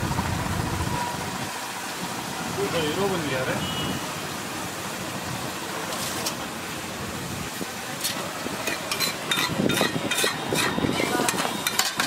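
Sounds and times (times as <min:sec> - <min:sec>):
batter sizzling on griddle: 0:04.8 - 0:12.0
steel plate scraping griddle: 0:08.0 - 0:12.0.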